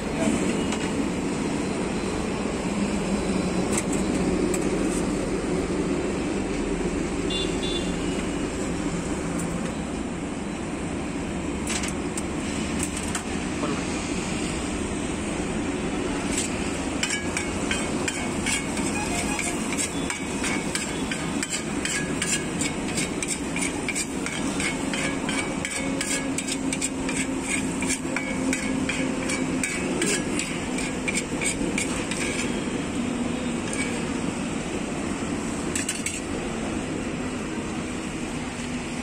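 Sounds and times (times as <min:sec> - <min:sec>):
busy street din: 0:00.0 - 0:39.0
metal spatula scraping griddle: 0:16.2 - 0:34.2, 0:35.7 - 0:36.4.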